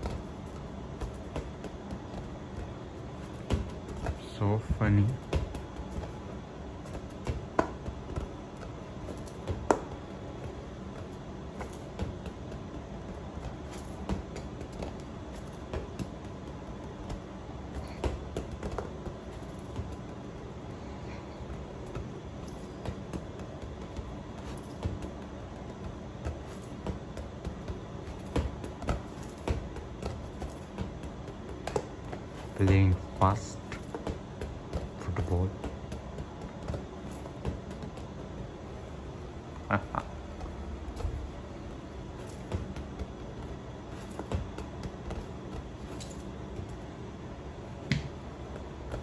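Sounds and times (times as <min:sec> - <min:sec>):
ball bumping on tiled floor: 0:00.0 - 0:04.3, 0:05.0 - 0:49.0
low background hum: 0:00.0 - 0:49.0.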